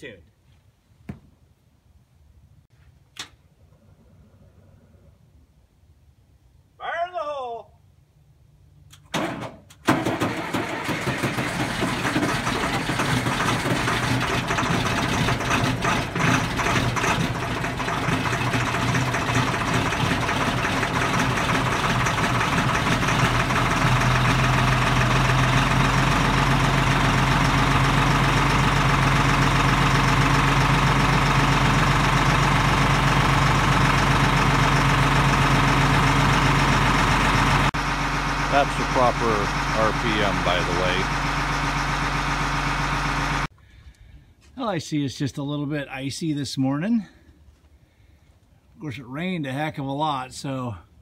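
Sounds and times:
diesel truck engine starting: 0:08.9 - 0:43.6
diesel engine idling: 0:09.8 - 0:43.8.

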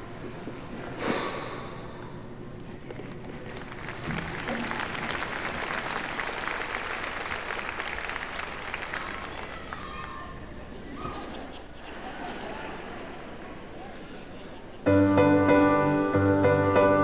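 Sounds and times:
audience applause: 0:03.3 - 0:10.4.

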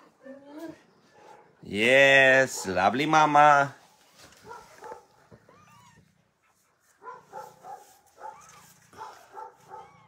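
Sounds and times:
kittens mewing: 0:05.2 - 0:06.6, 0:08.2 - 0:10.0.

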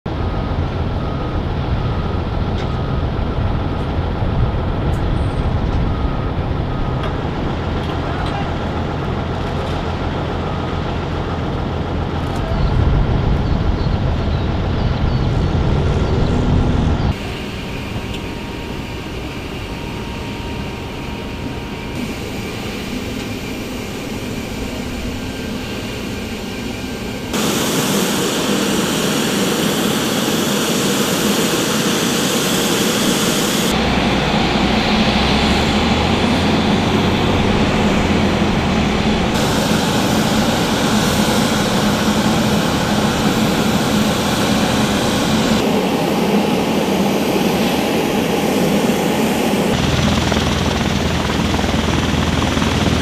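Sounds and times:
aircraft engines rumbling: 0:00.1 - 0:53.0
faint engine whine: 0:00.1 - 0:53.0.

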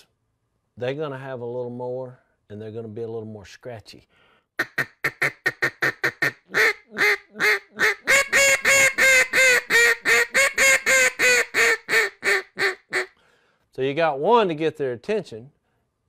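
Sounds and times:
duck call quacks: 0:04.6 - 0:13.2.

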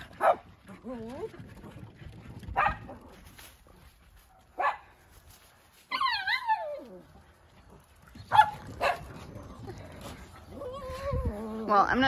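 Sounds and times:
dogs barking: 0:00.2 - 0:00.5, 0:02.6 - 0:03.0, 0:04.3 - 0:04.9, 0:08.2 - 0:09.3.

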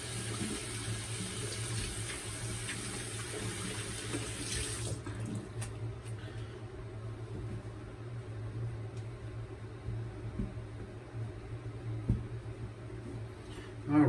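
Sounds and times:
faucet running into sink: 0:00.0 - 0:05.0.

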